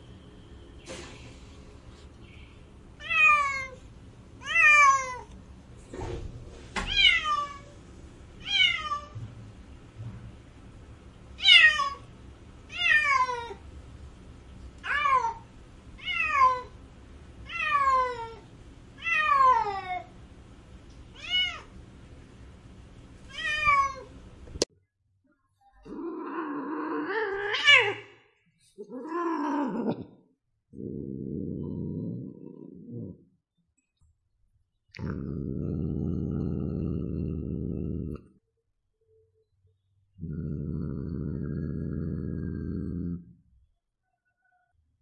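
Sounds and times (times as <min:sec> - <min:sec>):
cat meowing: 0:28.8 - 0:30.0.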